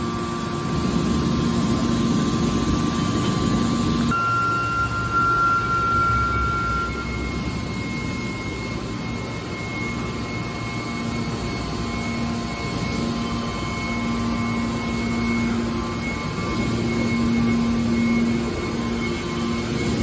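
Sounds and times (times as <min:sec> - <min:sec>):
lower hum tone: 0:00.0 - 0:20.0
motor and hydraulic pump hum: 0:00.0 - 0:20.0
thin high whine: 0:00.0 - 0:20.0.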